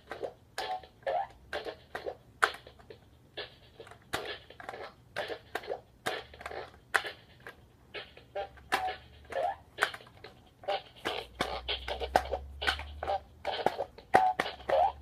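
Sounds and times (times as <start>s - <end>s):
electronic toy sound effects: 3.4s - 15.0s
sharp plastic clicks: 11.0s - 12.9s.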